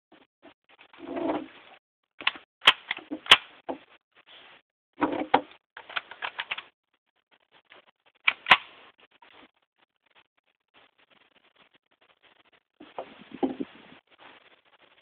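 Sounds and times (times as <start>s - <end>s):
rifle action clicks and clatter: 2.2s - 3.5s, 5.1s - 6.7s, 8.2s - 8.7s.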